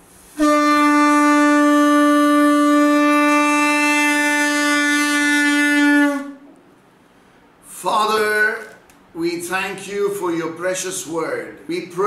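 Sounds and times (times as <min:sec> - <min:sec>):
shofar long blast: 0:00.2 - 0:06.5.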